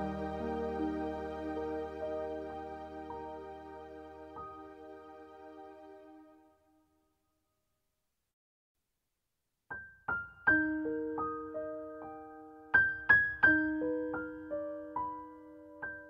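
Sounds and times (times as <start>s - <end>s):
gentle piano melody: 0.0s - 6.3s, 9.8s - 16.0s.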